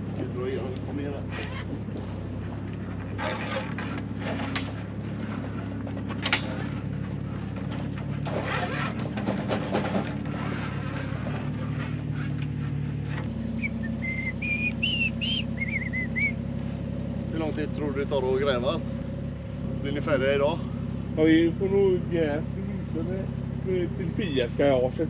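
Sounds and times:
cable rustling and scraping: 0:00.0 - 0:13.3
engine running: 0:00.0 - 0:25.0
person whistling: 0:13.6 - 0:16.4.

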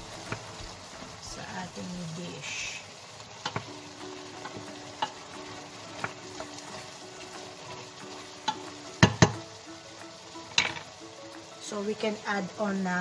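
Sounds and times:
food simmering in pan: 0:00.0 - 0:13.0
utensil knocking against pan: 0:08.4 - 0:09.4.

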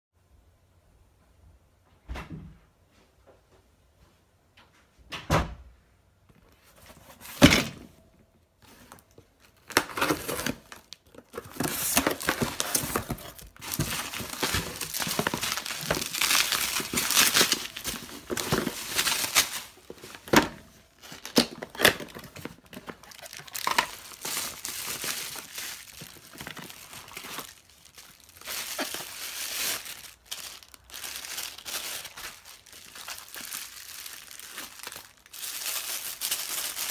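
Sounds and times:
plastic and paper crinkling: 0:08.6 - 0:36.9.

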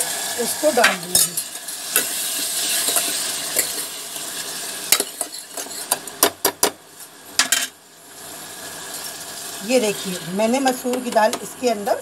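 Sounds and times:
masala sizzling in a pot: 0:00.0 - 0:12.0.

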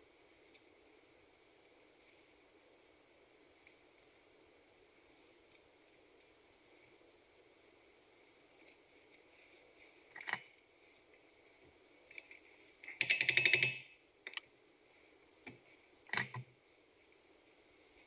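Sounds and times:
metal tools clinking: 0:10.2 - 0:10.6, 0:16.1 - 0:16.5.

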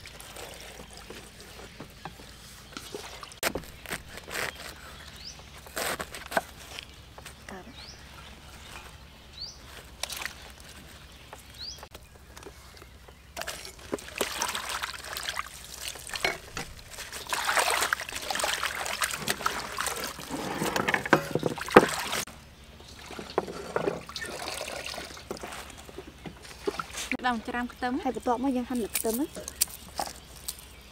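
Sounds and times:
water splashing in steel basin: 0:13.4 - 0:22.3, 0:22.9 - 0:27.1.

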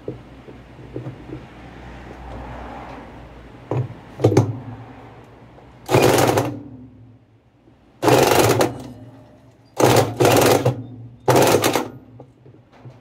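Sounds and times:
impact driver hammering: 0:05.9 - 0:06.7, 0:08.0 - 0:09.0, 0:09.8 - 0:12.0.

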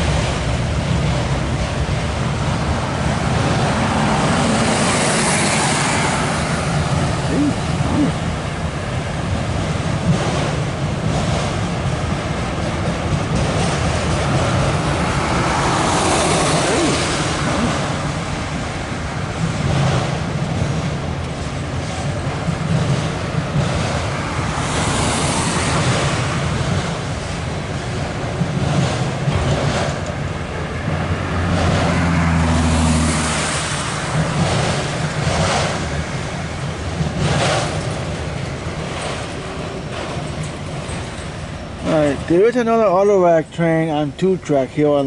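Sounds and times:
tyre road and wind noise: 0:00.0 - 0:45.0
low engine hum: 0:13.9 - 0:42.3.

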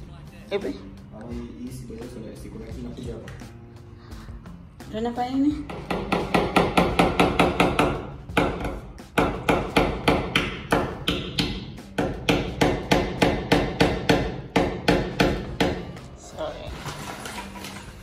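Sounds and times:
hammer striking a nail: 0:05.7 - 0:15.9.

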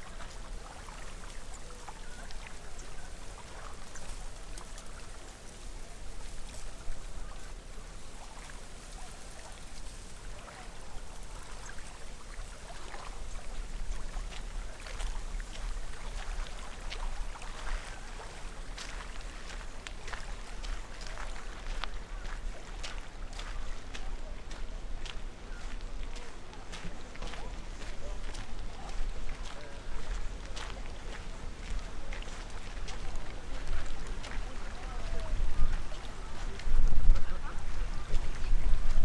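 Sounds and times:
water lapping: 0:00.0 - 0:39.0
small clicks and crackles: 0:01.3 - 0:07.5.

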